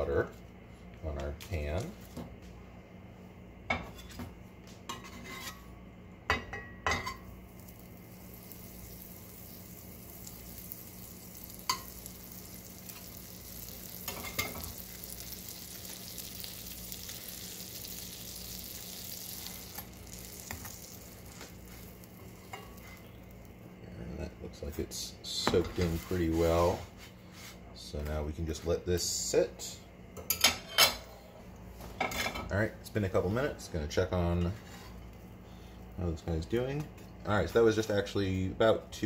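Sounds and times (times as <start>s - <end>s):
butter sizzling in a frying pan: 7.0s - 23.6s.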